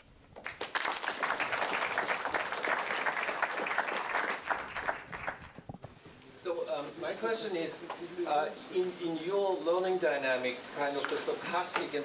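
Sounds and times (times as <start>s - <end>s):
audience clapping: 0.3s - 5.8s.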